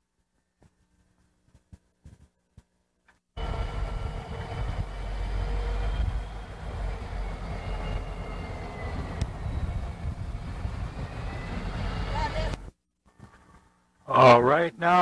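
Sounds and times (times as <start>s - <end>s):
diesel locomotives rumbling past: 3.4s - 12.7s
faint high squeal: 5.2s - 12.5s.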